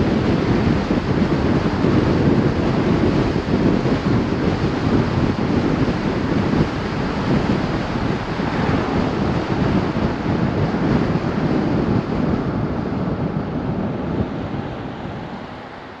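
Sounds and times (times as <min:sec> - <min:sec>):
wind buffeting microphone: 0:00.0 - 0:16.0
tyre and road noise: 0:03.6 - 0:12.0.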